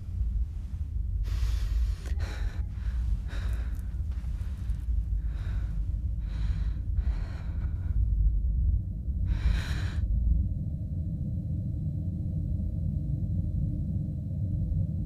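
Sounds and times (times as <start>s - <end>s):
woman breathing hard: 0.0s - 8.5s, 9.2s - 10.1s
steady low drone: 0.0s - 15.0s.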